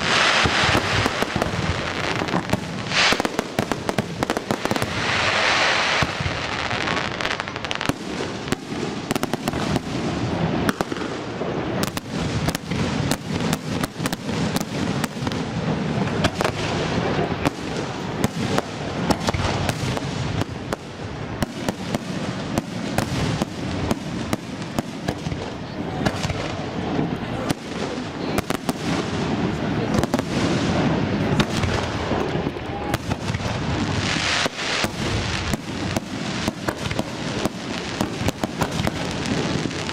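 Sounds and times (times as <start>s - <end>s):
firework hissing rush: 0.0s - 11.6s
firework bangs and crackles: 0.0s - 39.9s.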